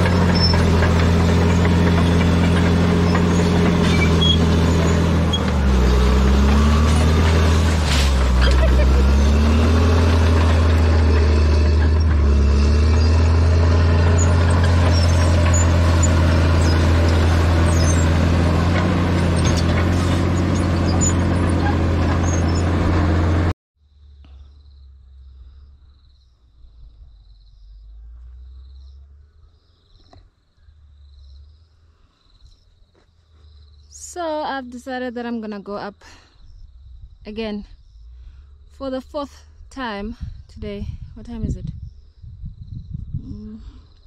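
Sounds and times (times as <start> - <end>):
bulldozer diesel engine running: 0.0 - 23.6
low rumble: 24.0 - 30.0, 36.2 - 44.0.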